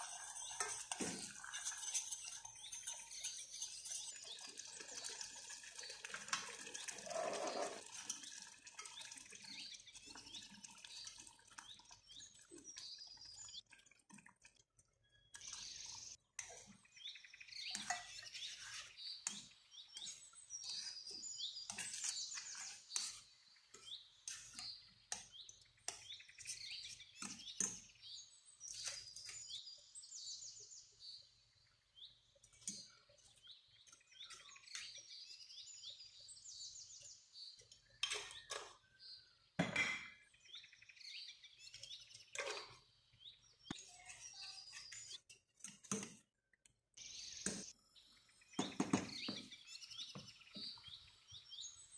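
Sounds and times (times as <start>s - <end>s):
metal spoon scraping saucepan: 0.0s - 4.4s, 7.0s - 8.3s, 17.7s - 23.3s
bird chirping trills: 15.0s - 39.3s, 47.0s - 51.9s.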